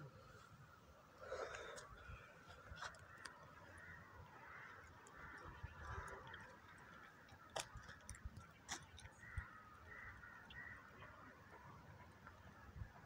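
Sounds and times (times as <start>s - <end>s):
distant bird calls: 1.2s - 13.0s.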